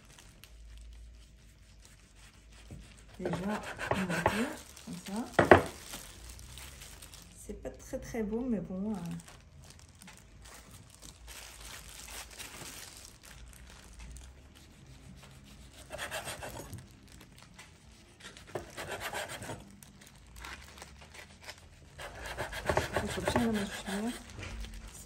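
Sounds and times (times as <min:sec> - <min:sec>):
knife sawing on wooden board: 0:03.2 - 0:04.6, 0:15.8 - 0:16.7, 0:18.6 - 0:19.6, 0:22.0 - 0:24.3.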